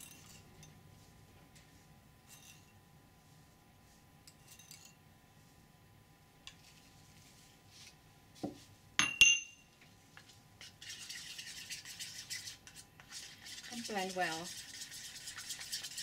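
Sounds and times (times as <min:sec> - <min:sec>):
ceramic clinking on ceramic: 0:09.0 - 0:09.6
spatula scraping paste: 0:10.2 - 0:16.0.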